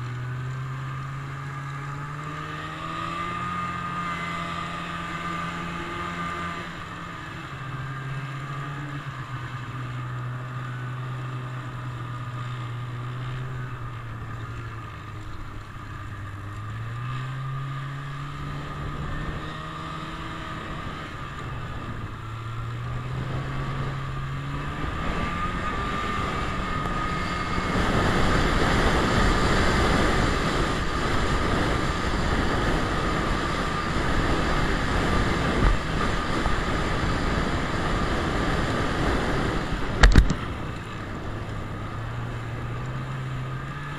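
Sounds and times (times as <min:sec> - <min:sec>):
snowmobile engine: 0:00.0 - 0:43.9.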